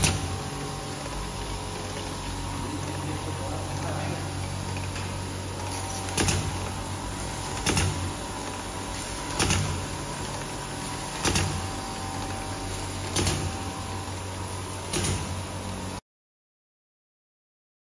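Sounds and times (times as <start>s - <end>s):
low machinery hum: 0.0s - 16.0s
sharp machine clack: 13.0s - 13.9s.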